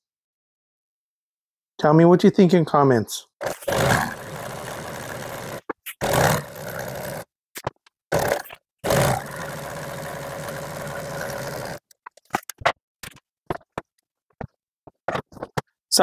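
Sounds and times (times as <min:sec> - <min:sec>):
industrial sewing machine stitching: 0:03.4 - 0:07.3, 0:08.1 - 0:11.8.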